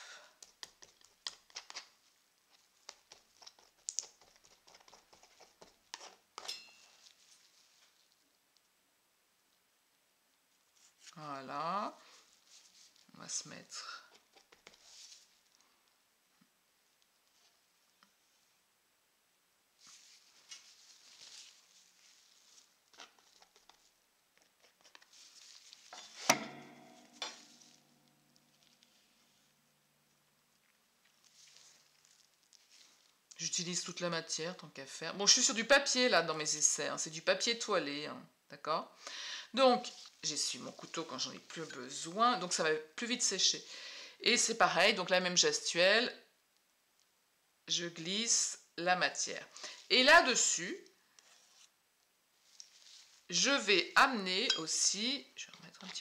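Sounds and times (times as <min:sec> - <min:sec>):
palette knife scraping and tapping: 0:02.5 - 0:06.9
sharp ringing knock: 0:26.3 - 0:27.8.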